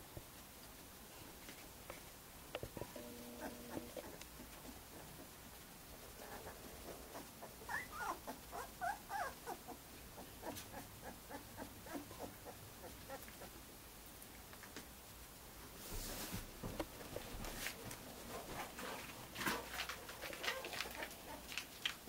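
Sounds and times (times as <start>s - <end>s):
puppy whimpering: 6.2s - 13.5s, 20.4s - 21.5s.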